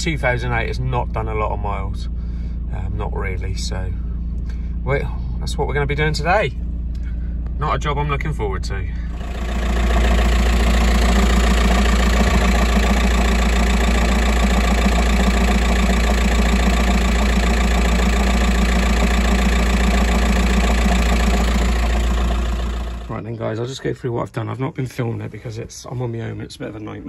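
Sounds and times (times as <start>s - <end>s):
van engine idling: 0.0s - 23.4s.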